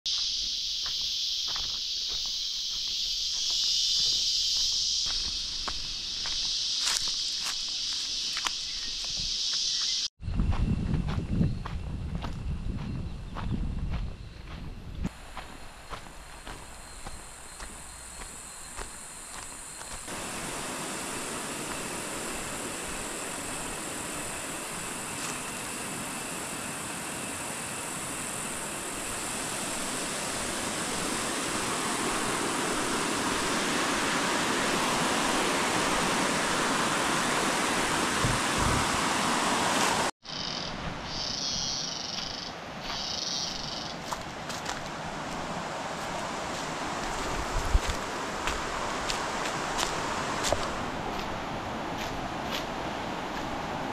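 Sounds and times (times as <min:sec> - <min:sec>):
insects calling in pulsing bursts: 0:00.1 - 0:51.5
high insect drone: 0:00.1 - 0:53.9
river rapids rushing: 0:29.0 - 0:40.1.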